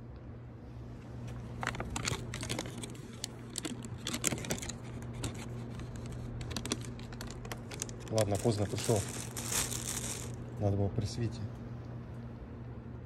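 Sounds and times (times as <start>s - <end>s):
plastic bag crinkling: 1.5s - 10.5s.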